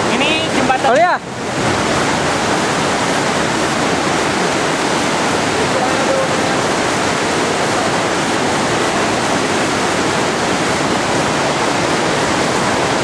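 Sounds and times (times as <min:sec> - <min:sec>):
fast-flowing stream: 0:00.0 - 0:13.0
small waterfall: 0:00.0 - 0:13.0.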